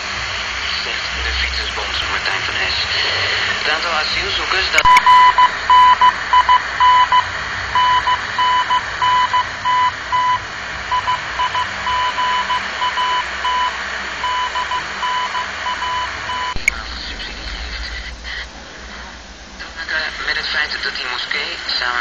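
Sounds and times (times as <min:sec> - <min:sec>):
radio static hiss: 0:00.0 - 0:22.0
morse code beeps: 0:04.8 - 0:17.0.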